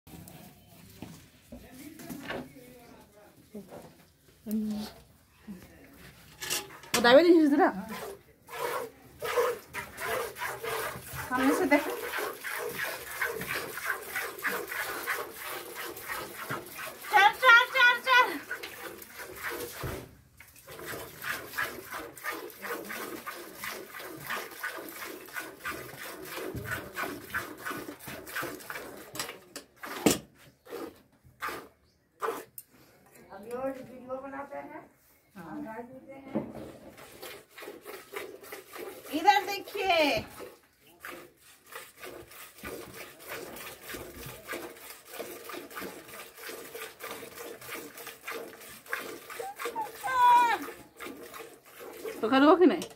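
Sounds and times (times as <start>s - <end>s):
milk squirting into pail: 8.5s - 32.6s, 36.9s - 52.5s.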